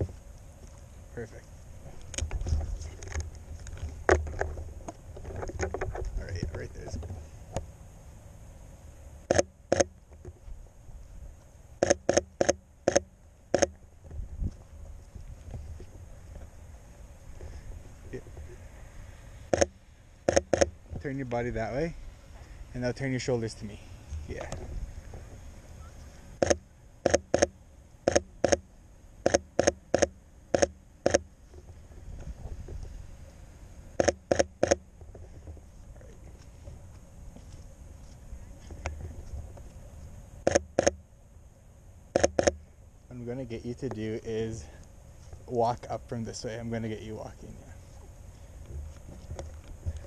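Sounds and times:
camera shutter firing: 0:09.3 - 0:09.9.

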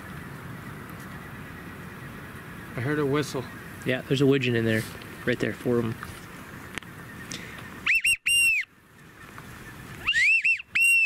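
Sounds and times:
duck whistle call: 0:07.8 - 0:08.7, 0:10.0 - 0:11.0.

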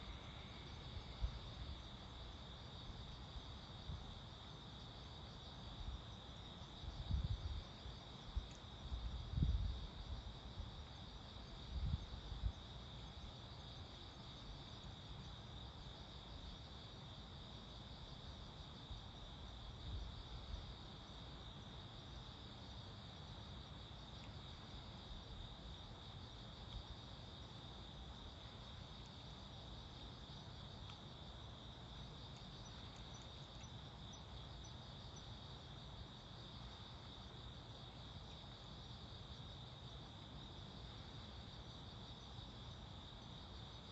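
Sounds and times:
crickets chirring: 0:00.0 - 0:43.9.

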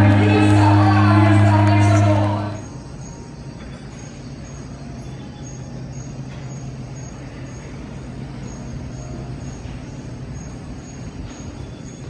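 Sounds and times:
background noise: 0:00.0 - 0:12.0
low mechanical hum: 0:00.0 - 0:12.0.

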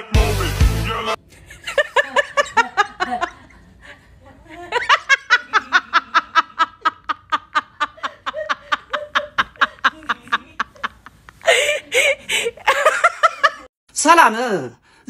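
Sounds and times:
person laughing hard: 0:01.4 - 0:13.7.

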